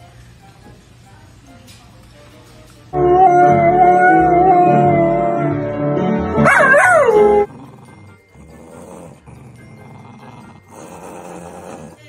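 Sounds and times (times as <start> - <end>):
dog howling: 3.0 - 5.6, 6.4 - 7.5.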